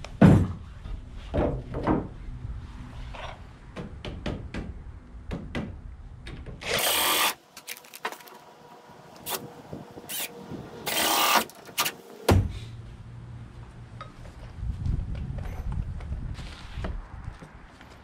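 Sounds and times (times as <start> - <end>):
cordless drill driving screws: 6.6 - 7.7, 10.1 - 12.0.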